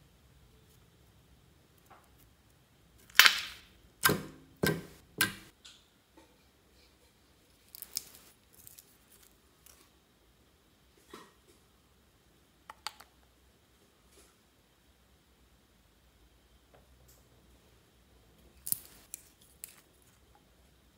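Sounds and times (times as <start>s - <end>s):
slime squelching and popping: 3.0s - 5.5s.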